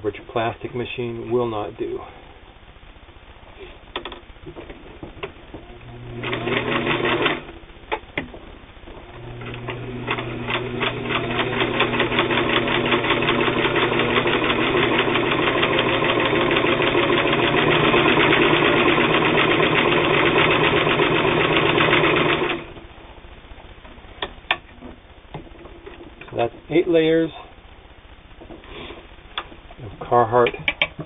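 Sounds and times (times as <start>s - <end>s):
sewing machine stitching: 5.6s - 7.5s, 9.2s - 22.8s.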